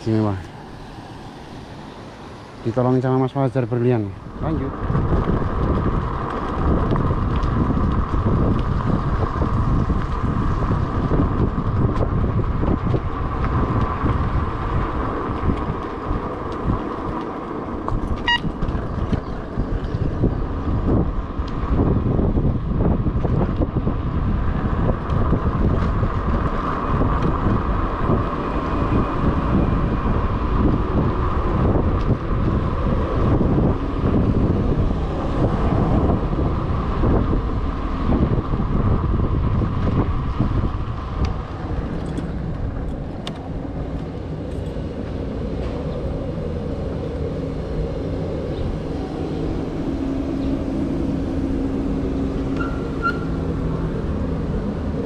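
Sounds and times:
wind buffeting microphone: 0.0s - 55.0s
tyre rumble on rough pavement: 4.2s - 55.0s
scooter motor whine: 24.4s - 55.0s.

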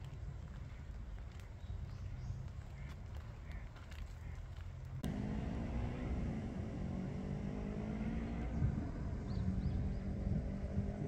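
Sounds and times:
engine running steadily: 4.6s - 11.0s.

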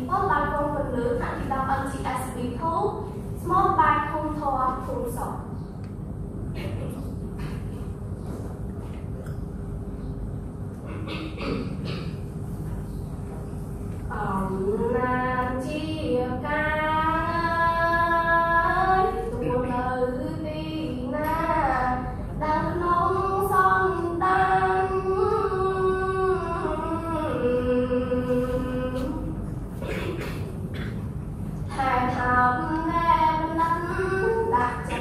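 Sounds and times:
girl chanting verse: 31.7s - 35.0s.

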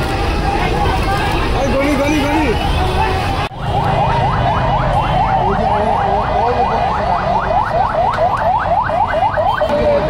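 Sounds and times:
street crowd noise: 0.0s - 10.0s
electronic siren yelping: 3.6s - 9.8s.

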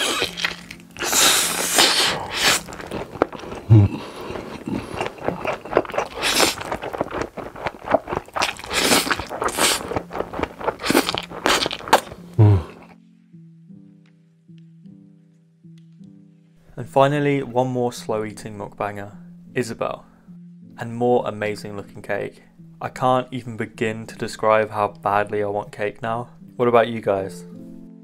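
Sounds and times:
slurping noodles: 0.0s - 12.9s
wet chewing and smacking: 0.0s - 12.9s.

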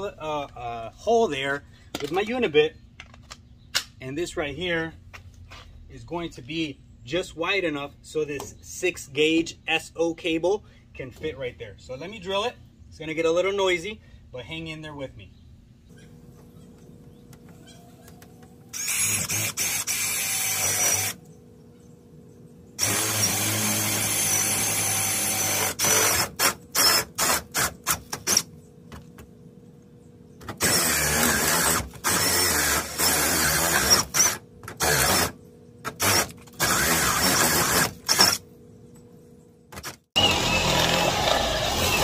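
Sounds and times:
cordless drill cutting metal: 18.7s - 21.2s, 22.8s - 28.5s, 30.6s - 38.4s, 40.2s - 42.0s
drill trigger pulses: 18.7s - 21.2s, 22.8s - 28.5s, 30.6s - 38.4s, 40.2s - 42.0s.

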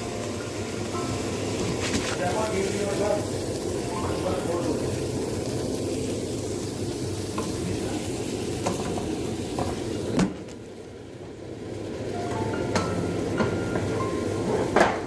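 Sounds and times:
vegetables sizzling in a pot: 0.0s - 15.0s
musical notes: 3.2s - 6.7s, 12.1s - 14.8s.

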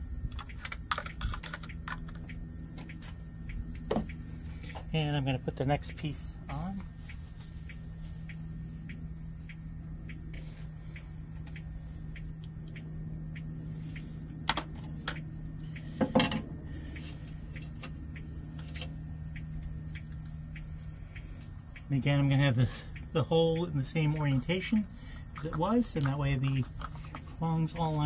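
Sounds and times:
crickets chirping: 0.0s - 28.0s
steady low hum: 0.0s - 28.0s
plastic parts clicking into place: 0.4s - 2.3s.

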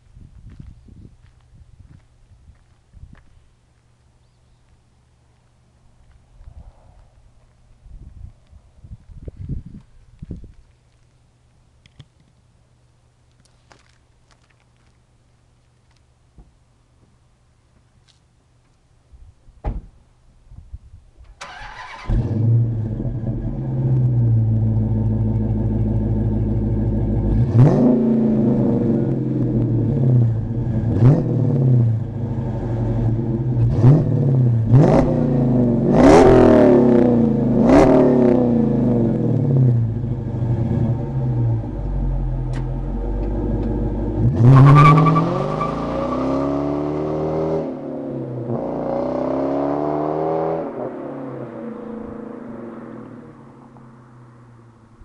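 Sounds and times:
car engine idling and revving: 21.5s - 55.0s.

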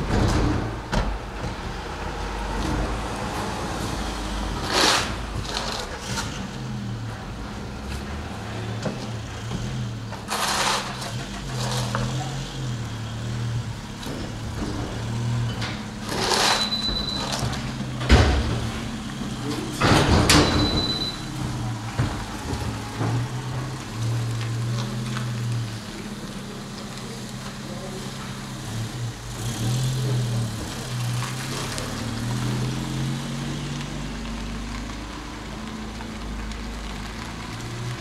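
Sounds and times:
idling engine hum: 0.0s - 38.0s
shovel scraping over asphalt: 4.5s - 6.5s, 10.2s - 12.4s, 15.8s - 17.6s
brief high squeaks: 16.2s - 17.5s.

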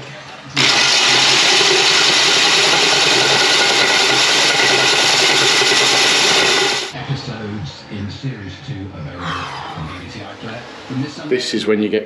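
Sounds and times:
power drill coring into brick: 0.6s - 7.0s.

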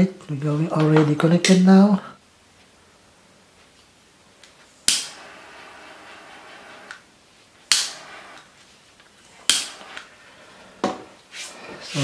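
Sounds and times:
torch lighter igniter clicking: 4.9s - 5.2s.

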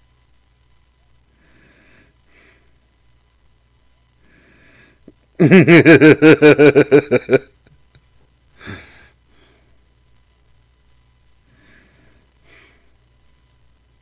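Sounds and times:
man laughing loudly: 5.4s - 8.0s
breathy exhale: 8.6s - 9.8s.

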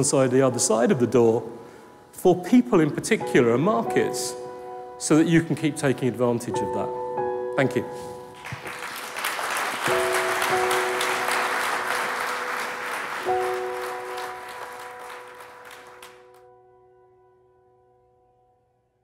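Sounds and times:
audience applauding: 8.4s - 16.4s.

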